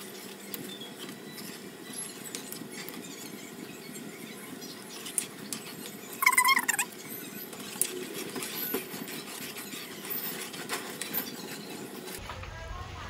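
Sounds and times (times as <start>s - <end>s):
high wavering squeak: 6.2s - 7.5s.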